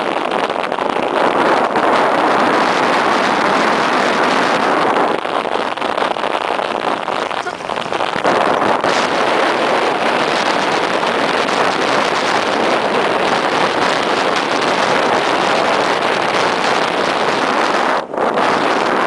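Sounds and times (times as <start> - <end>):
wind buffeting microphone: 0.0 - 19.0
sled runners scraping snow: 1.2 - 18.0.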